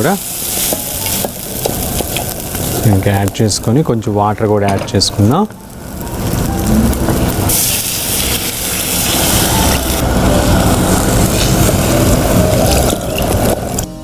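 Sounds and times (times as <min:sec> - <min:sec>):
water poured into hot pot hissing: 0:07.4 - 0:13.8.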